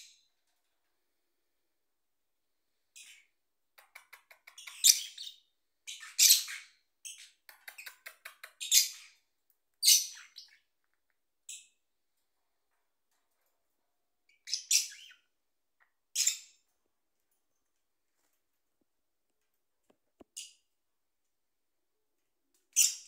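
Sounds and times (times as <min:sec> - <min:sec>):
parrots chirping: 0:03.0 - 0:09.2, 0:09.8 - 0:10.8, 0:14.3 - 0:16.6, 0:22.7 - 0:23.0.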